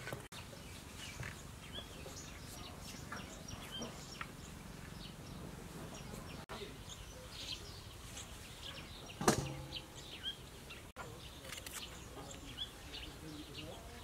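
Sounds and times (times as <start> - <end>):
birds chirping: 0.0 - 14.0
loud ringing knock: 9.2 - 10.1.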